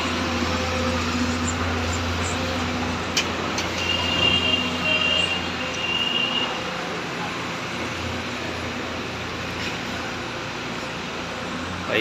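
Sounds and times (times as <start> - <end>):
distant road traffic: 0.0 - 12.0.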